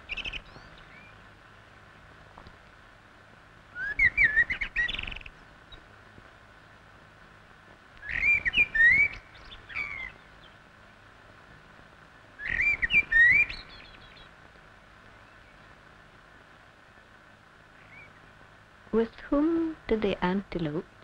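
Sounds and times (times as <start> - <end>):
bird calling: 3.7 - 5.8, 8.0 - 10.6, 12.4 - 14.3.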